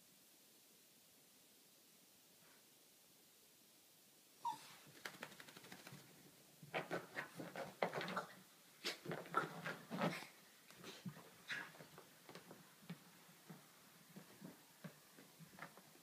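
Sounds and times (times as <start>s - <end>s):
dog squeak: 4.4s - 4.8s.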